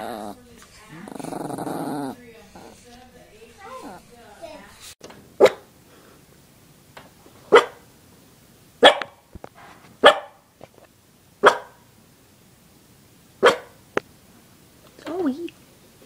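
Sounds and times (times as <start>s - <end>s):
puppy barking: 0.0s - 5.6s, 7.5s - 7.8s, 8.8s - 9.2s, 10.0s - 10.4s, 11.4s - 11.8s, 13.4s - 13.8s.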